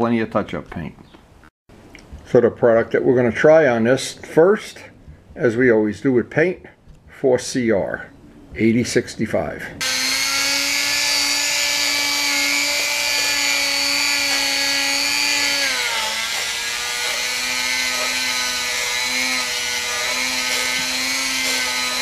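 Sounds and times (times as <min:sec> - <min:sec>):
rotary tool whining: 0:09.8 - 0:22.0.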